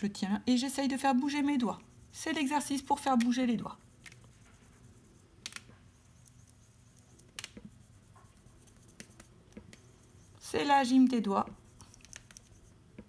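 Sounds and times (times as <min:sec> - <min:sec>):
low steady hum: 0:00.0 - 0:13.0
marker scratching on whiteboard: 0:00.9 - 0:13.0.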